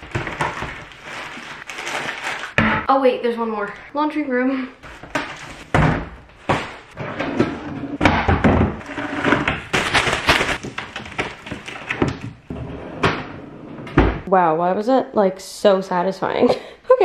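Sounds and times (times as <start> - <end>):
plastic bins knocking: 0.0 - 1.0, 2.5 - 2.9, 4.9 - 13.3
plastic trash bag rustling: 0.0 - 2.6, 8.8 - 12.0.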